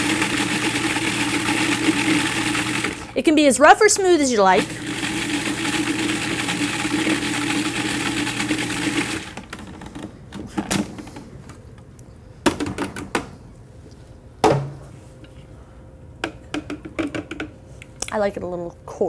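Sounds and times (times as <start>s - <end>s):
electric blender running: 0.0s - 3.2s, 4.4s - 9.5s.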